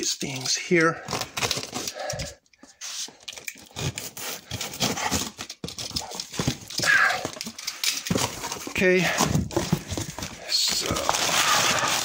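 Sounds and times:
cardboard flaps scraping and rustling: 0:08.1 - 0:12.0.

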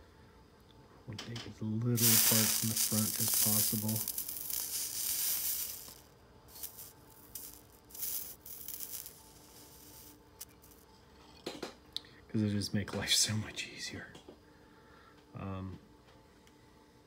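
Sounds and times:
soldering iron sizzling: 0:02.0 - 0:10.9.

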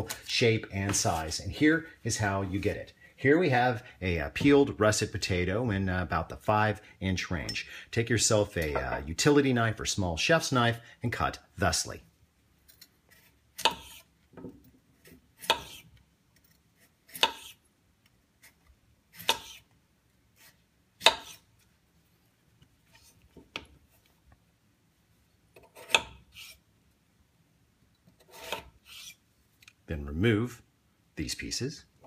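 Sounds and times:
knife slicing potato: 0:13.0 - 0:14.1, 0:15.0 - 0:17.6, 0:18.4 - 0:19.7, 0:20.3 - 0:21.5, 0:25.5 - 0:26.6, 0:28.1 - 0:29.2.

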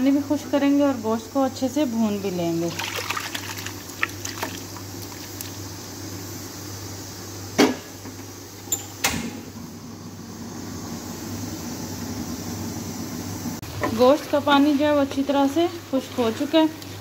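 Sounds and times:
broth cooking in a pan: 0:00.1 - 0:08.5.

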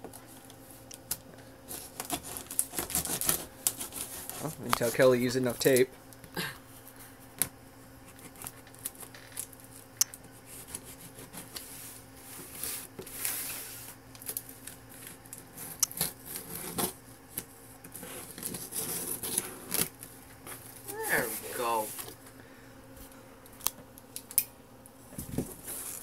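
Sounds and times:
tape scraping and ripping: 0:01.7 - 0:05.0, 0:12.4 - 0:22.1.

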